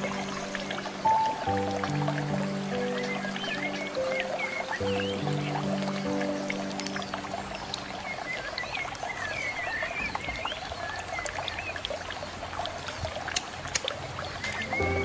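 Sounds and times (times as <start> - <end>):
water trickling into tank: 3.4 - 15.0
high chirps: 14.4 - 15.0.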